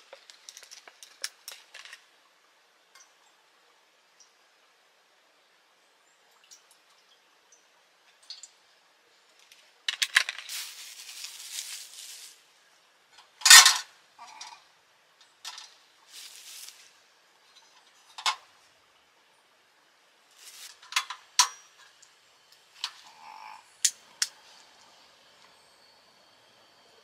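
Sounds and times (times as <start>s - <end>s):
rustling: 9.4s - 12.6s, 16.0s - 17.0s, 20.3s - 21.2s.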